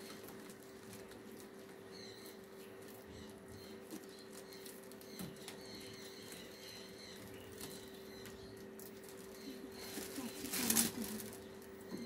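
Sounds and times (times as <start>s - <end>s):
steady low hum: 0.0s - 12.0s
plastic bag crinkling: 8.7s - 11.8s.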